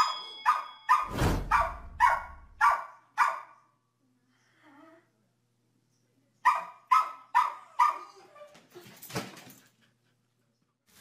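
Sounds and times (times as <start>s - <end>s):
small dog barking: 0.5s - 3.6s, 6.4s - 8.2s.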